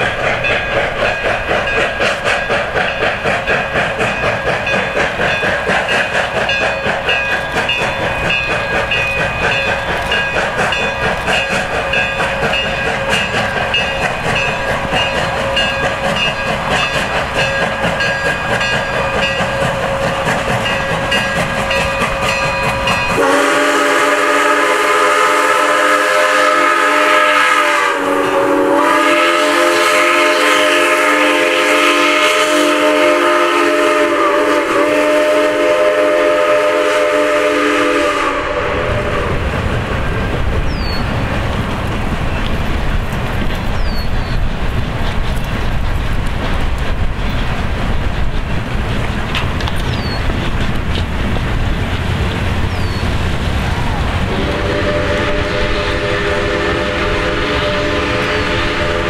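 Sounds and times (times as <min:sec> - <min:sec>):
rail noise: 0:00.0 - 0:59.0
steam locomotive exhaust beat: 0:00.0 - 0:59.0
steam whistle: 0:23.1 - 0:39.5, 0:54.3 - 0:59.0.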